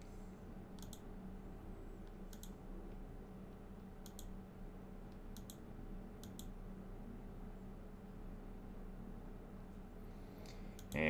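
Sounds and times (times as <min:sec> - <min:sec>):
faint low hum: 0:00.0 - 0:11.0
computer mouse clicking: 0:00.7 - 0:01.0, 0:02.0 - 0:04.4, 0:05.1 - 0:05.6, 0:06.2 - 0:06.5.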